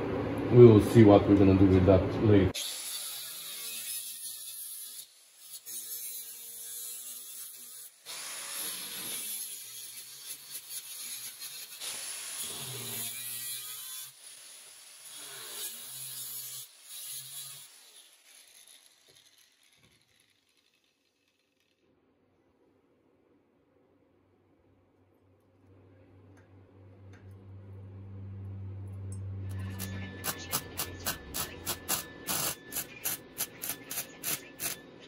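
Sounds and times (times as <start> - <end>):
angle grinder cutting metal: 2.6 - 21.8, 29.0 - 35.0.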